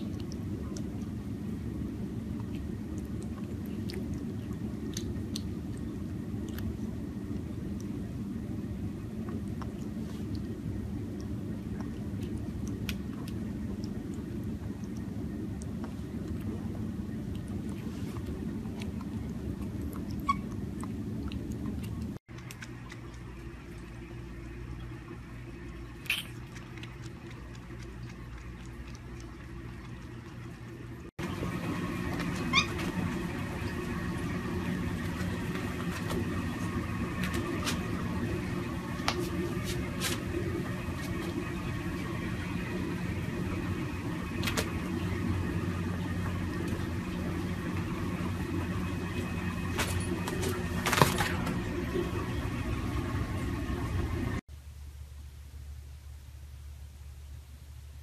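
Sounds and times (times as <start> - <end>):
steady low hum: 0.0 - 58.0
monkey squeaks: 32.5 - 32.8.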